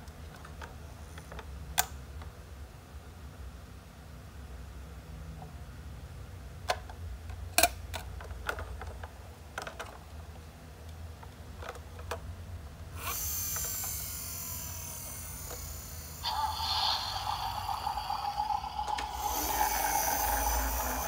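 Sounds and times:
steady low hum: 12.9s - 21.0s
high hissing whir: 13.0s - 21.0s.

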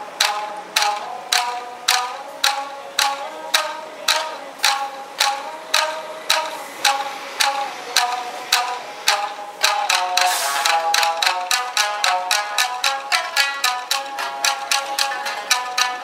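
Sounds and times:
shamisen ensemble playing: 0.0s - 16.0s.

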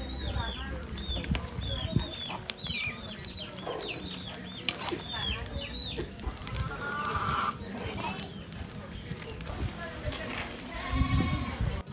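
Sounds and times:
chickens calling: 0.0s - 9.4s.

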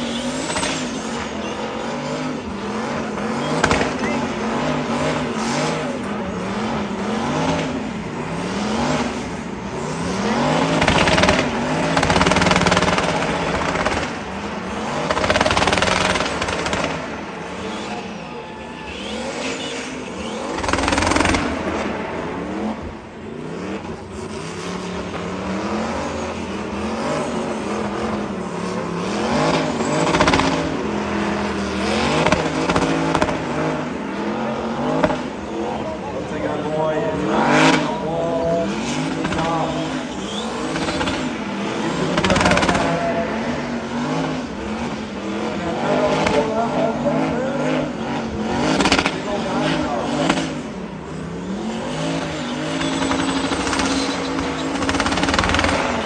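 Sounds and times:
car engine revving: 0.0s - 56.0s
tyres screeching: 17.4s - 21.5s, 37.2s - 46.2s, 51.3s - 56.0s.

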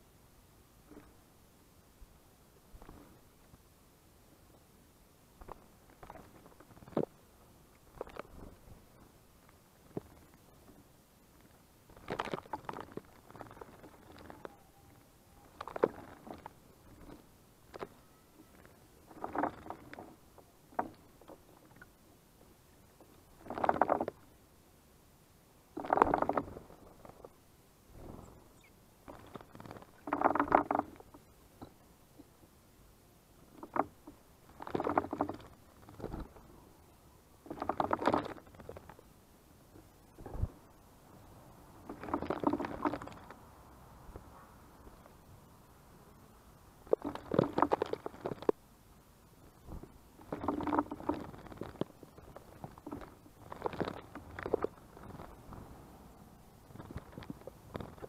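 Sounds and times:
birds splashing in water: 15.4s - 20.0s.

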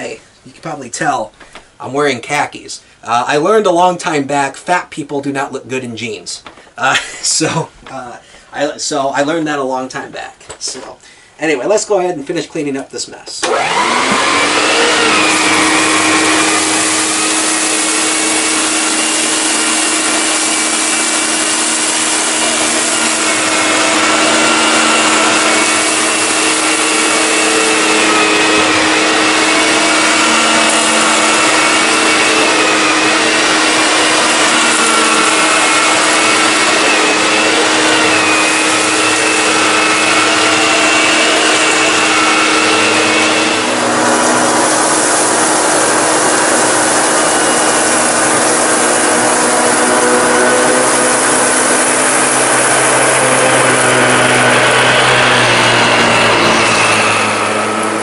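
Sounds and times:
vacuum cleaner whine: 13.4s - 58.0s
vacuum nozzle on carpet: 13.4s - 58.0s.

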